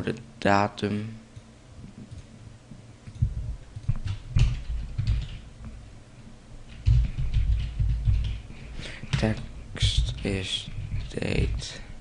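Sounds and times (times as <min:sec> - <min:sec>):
computer keyboard typing: 0:03.1 - 0:05.5, 0:06.7 - 0:08.5, 0:09.1 - 0:11.6.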